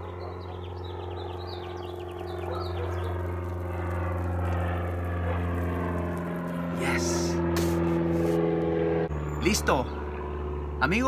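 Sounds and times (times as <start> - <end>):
bird chirping: 0.0 - 3.4
low engine hum: 0.0 - 11.0.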